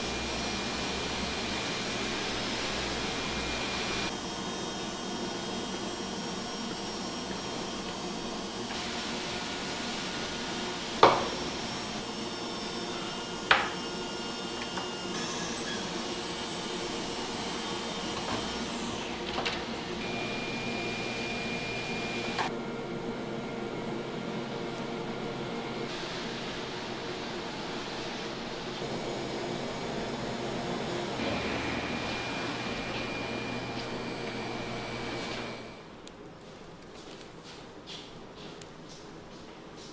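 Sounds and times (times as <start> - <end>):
appliances humming and hissing: 0.0 - 39.9.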